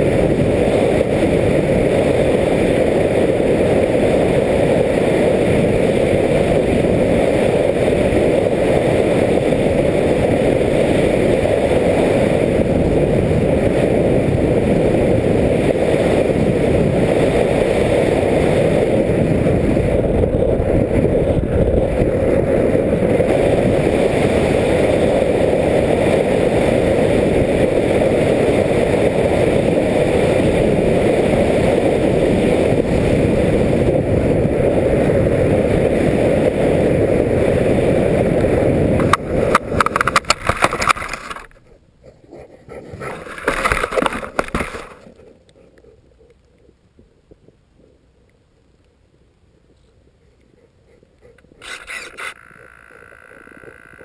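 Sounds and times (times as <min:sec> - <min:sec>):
model plane motor and air rush: 0:00.0 - 0:41.7, 0:51.3 - 0:54.0
plane scraping through snow: 0:42.7 - 0:45.2, 0:51.6 - 0:54.0.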